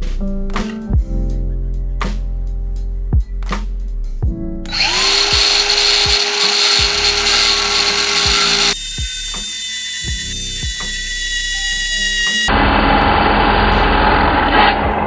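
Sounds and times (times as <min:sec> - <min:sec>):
background music with beat: 0:00.0 - 0:06.2, 0:10.1 - 0:11.2
power tool motor running: 0:04.7 - 0:12.5.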